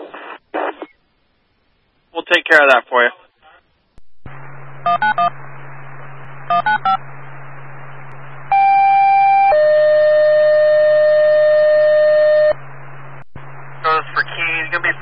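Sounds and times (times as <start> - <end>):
radio hum: 0.0 - 1.4, 2.1 - 8.6, 12.0 - 15.0.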